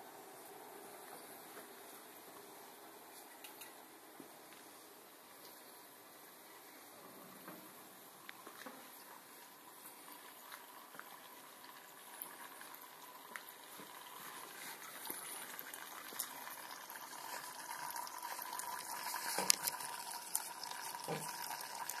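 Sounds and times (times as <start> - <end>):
thin stream of liquid trickling: 8.2 - 22.0.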